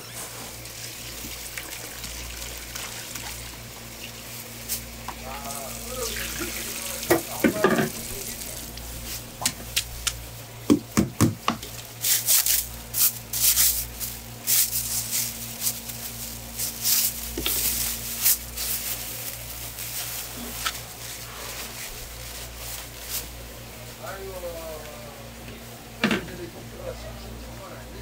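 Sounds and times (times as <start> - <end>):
plastic bag crinkling: 0.1 - 10.4, 11.6 - 23.7.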